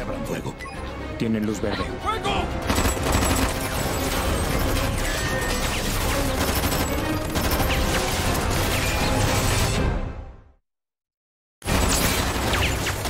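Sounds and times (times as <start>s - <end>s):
dramatic score music: 0.0s - 10.6s
automatic rifles firing: 2.6s - 5.0s.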